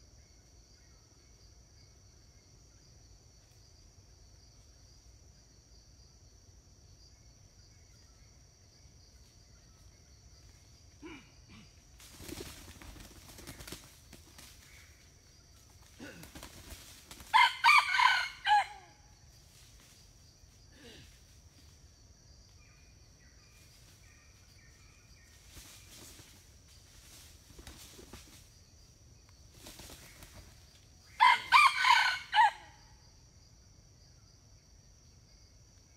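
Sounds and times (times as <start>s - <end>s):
high insect drone: 0.0s - 35.9s
rooster crowing: 17.3s - 19.1s, 31.2s - 32.9s
rustling in dry leaves: 24.7s - 28.6s.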